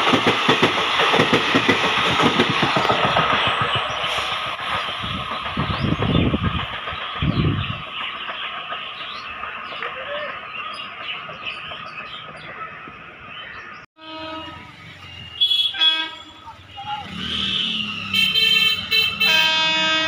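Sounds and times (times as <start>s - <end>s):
birds chirping: 2.6s - 19.3s
locomotive horn: 14.0s - 20.0s.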